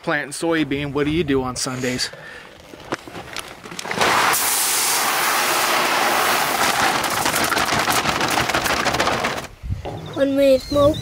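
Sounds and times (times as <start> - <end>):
seeds pouring into a box: 3.8 - 9.5.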